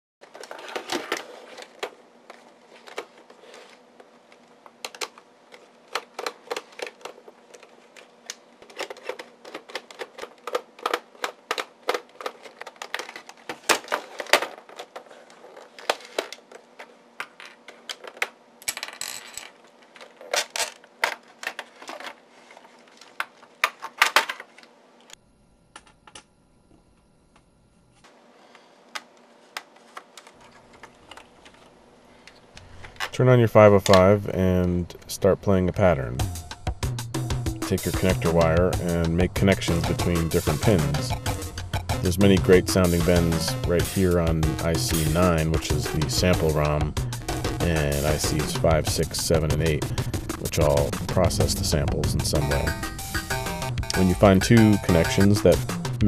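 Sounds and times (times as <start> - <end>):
faint steady hum: 0.2 - 36.8
plastic case clicks and rattles: 5.9 - 7.7, 8.3 - 18.4.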